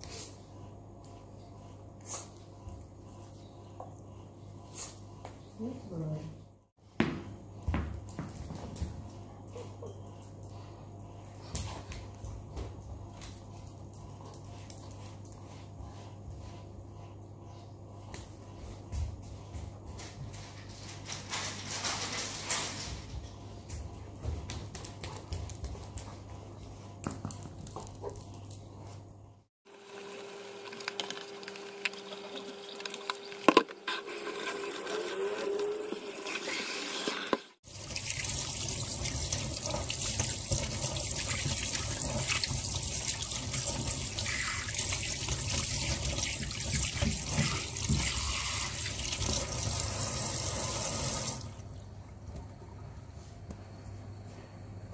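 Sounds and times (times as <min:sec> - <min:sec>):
tap water running into steel sink: 0:31.4 - 0:51.5.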